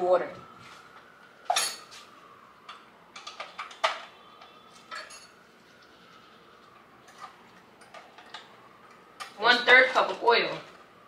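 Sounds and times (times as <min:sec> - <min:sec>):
dishes and utensils clinking: 0:01.5 - 0:02.0, 0:04.9 - 0:05.4.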